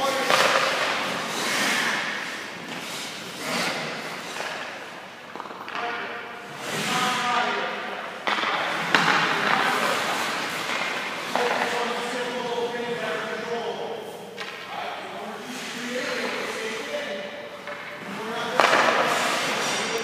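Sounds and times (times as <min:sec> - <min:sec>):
skate blades scraping ice: 0:00.1 - 0:05.8, 0:06.5 - 0:07.2, 0:08.3 - 0:12.3, 0:17.9 - 0:20.0.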